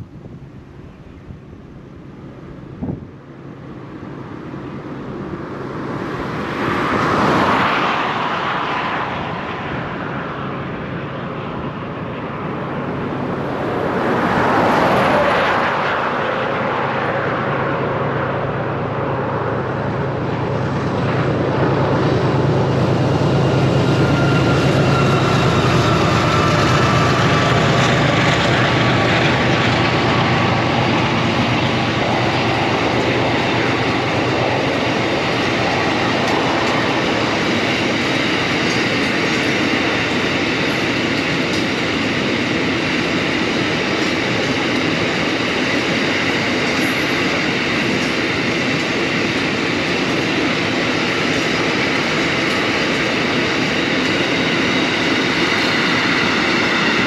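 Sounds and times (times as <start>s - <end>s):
locomotive engine drone: 0.0s - 57.0s
rushing noise: 5.7s - 57.0s.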